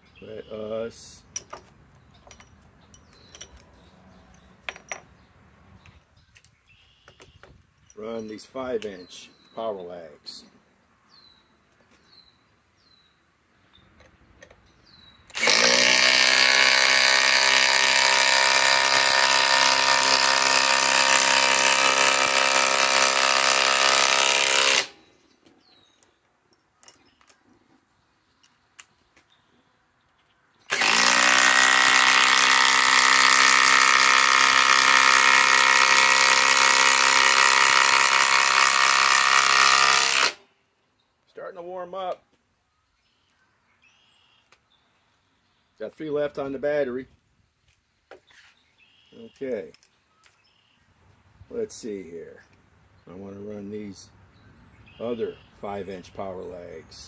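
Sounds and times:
impact driver driving screws into wood: 15.3 - 25.1, 30.7 - 40.5.

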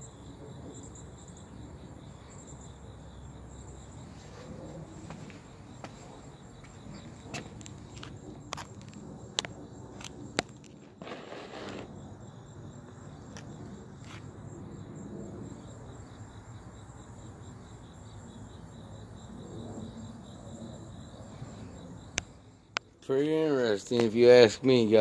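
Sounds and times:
crickets chirping: 0.0 - 25.0
brief rustle: 11.0 - 11.9.

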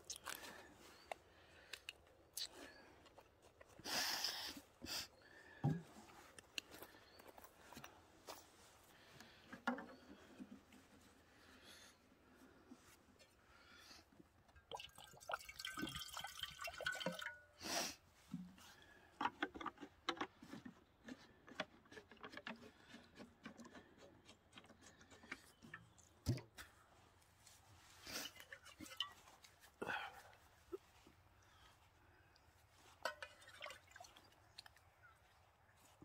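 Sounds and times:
water pouring into metal tin: 14.7 - 17.4, 33.1 - 34.4
water splashing and dripping: 14.7 - 17.4, 33.0 - 34.8.

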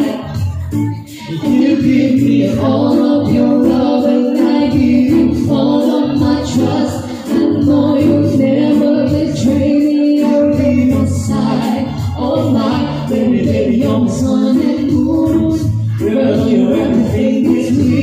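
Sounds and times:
electronic keyboard chords: 0.0 - 18.0
steady bass line: 0.0 - 18.0
woman singing a slow love song: 0.0 - 18.0.

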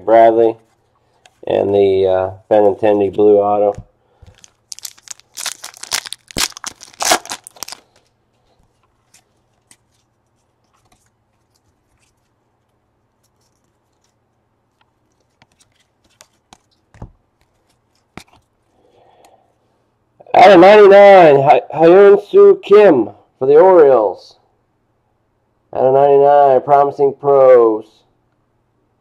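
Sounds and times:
wrapper tearing and crinkling: 4.3 - 8.1.

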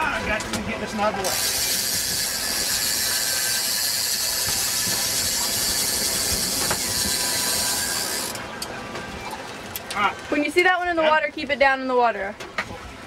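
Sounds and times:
fishing reel drag buzzing: 1.2 - 8.4.

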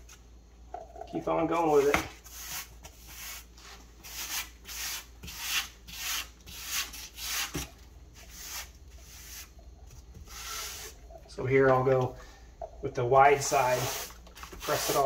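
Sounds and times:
grout float scraping tiles: 1.5 - 11.1, 13.3 - 15.0.

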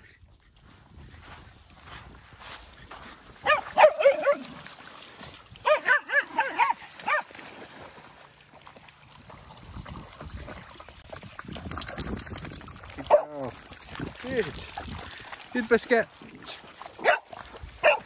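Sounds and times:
dog yipping and barking: 3.4 - 4.4, 5.6 - 7.3, 17.0 - 17.2, 17.8 - 18.0.

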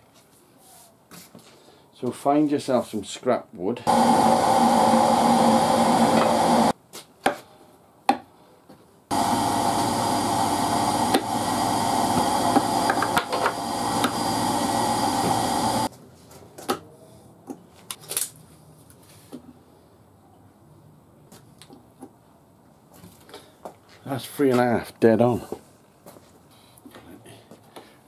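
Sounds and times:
power tool running: 3.9 - 6.7, 9.1 - 15.9.

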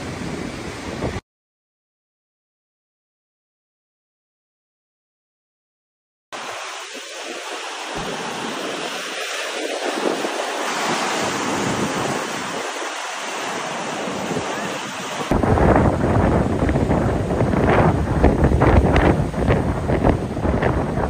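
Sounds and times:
wind buffeting the microphone: 0.0 - 1.2, 6.6 - 21.0
sea breaking on rocks: 6.5 - 21.0.

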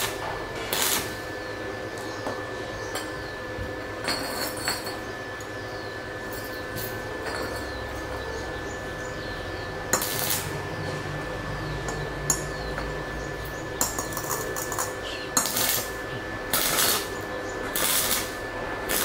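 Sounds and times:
electrode scratching on steel: 0.0 - 1.3, 10.0 - 10.8, 14.1 - 19.0
crackling welding arc: 0.0 - 3.1, 9.0 - 19.0
faint hum: 0.0 - 19.0.

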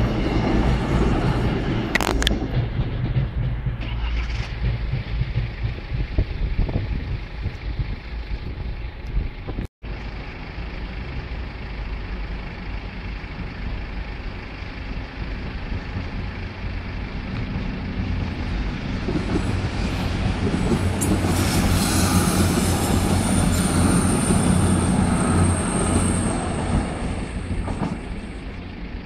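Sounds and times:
low engine hum: 0.0 - 21.5
diesel train running over crossing: 0.0 - 29.0.

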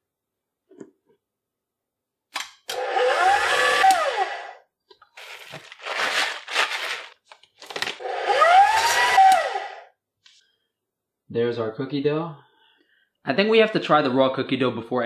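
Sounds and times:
stand mixer motor: 2.8 - 4.5, 8.0 - 9.7
paper bag rustling: 5.1 - 8.0.

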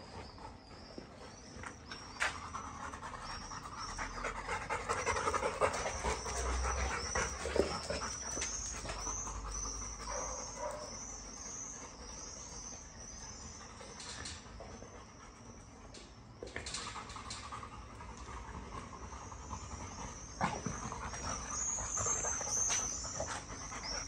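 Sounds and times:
dog panting: 0.0 - 14.0.

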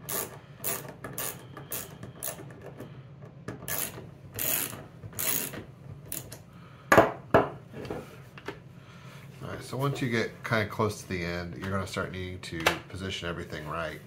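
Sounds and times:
socket wrench ratcheting clicks: 3.7 - 6.4.

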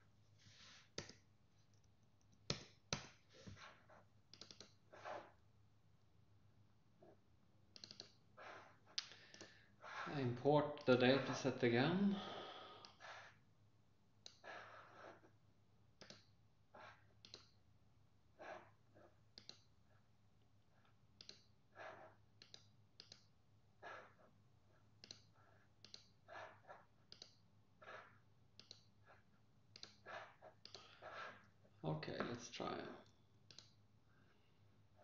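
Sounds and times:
computer mouse clicks: 4.3 - 4.8, 7.7 - 8.2, 9.0 - 9.6, 14.2 - 14.5, 16.0 - 16.3, 17.2 - 17.6, 19.3 - 19.7, 21.2 - 21.5, 22.4 - 23.3, 25.0 - 26.2, 27.0 - 27.4, 28.6 - 28.9, 29.7 - 30.9, 33.5 - 33.8.

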